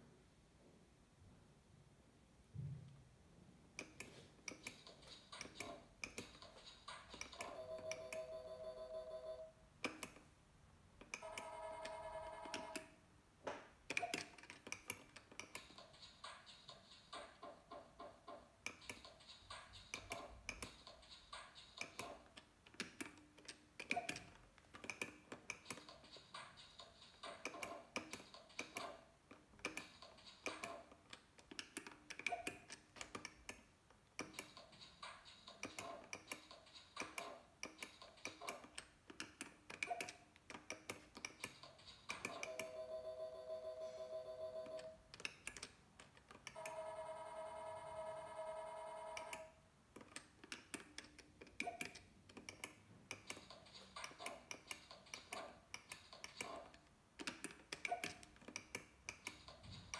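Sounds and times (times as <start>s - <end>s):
slot machine rapid electronic ticks: 15.6s - 22.2s, 46.6s - 49.5s.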